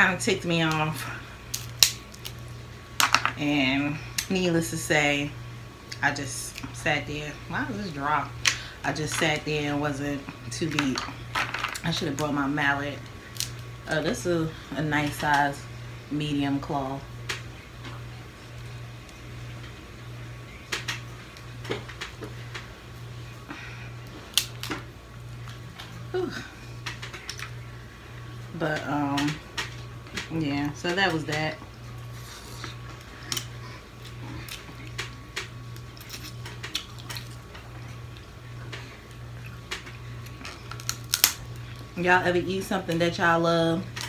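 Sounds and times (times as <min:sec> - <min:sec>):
steady low hum: 0:00.0 - 0:44.0
crab shell cracking by hand: 0:01.5 - 0:02.5, 0:13.3 - 0:13.7, 0:24.3 - 0:24.8, 0:39.6 - 0:41.6.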